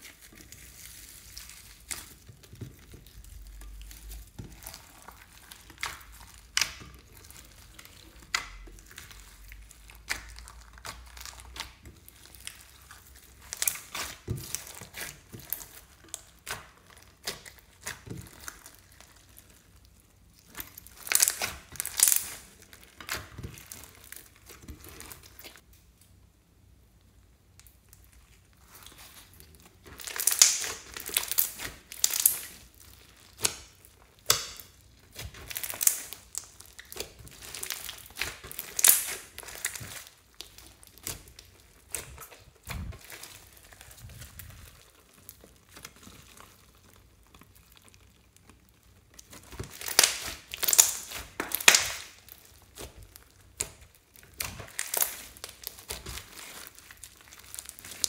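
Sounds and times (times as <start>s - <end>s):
slime crackling and popping: 0.0s - 58.0s.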